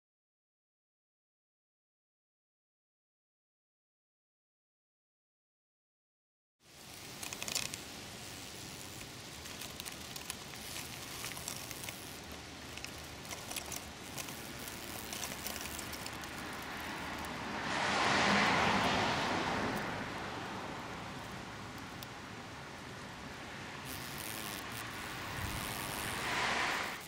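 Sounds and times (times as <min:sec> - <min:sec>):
leaves rustling against camera: 0:06.6 - 0:27.0
outdoor background noise: 0:06.6 - 0:27.0
broad rush of noise: 0:06.7 - 0:27.0.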